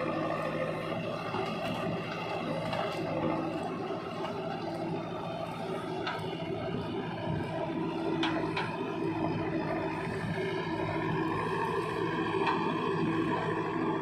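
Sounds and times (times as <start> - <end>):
diesel engines idling: 0.0 - 14.0.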